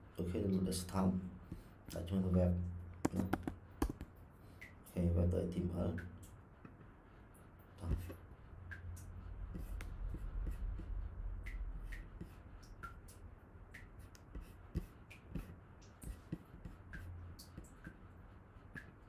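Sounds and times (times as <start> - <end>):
low steady hum: 0.0 - 19.0
computer mouse clicks: 3.0 - 4.1.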